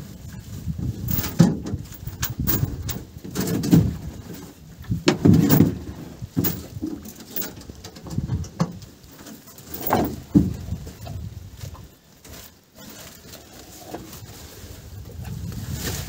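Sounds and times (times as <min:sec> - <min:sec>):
gear thumping in a metal boat: 0:00.9 - 0:11.2.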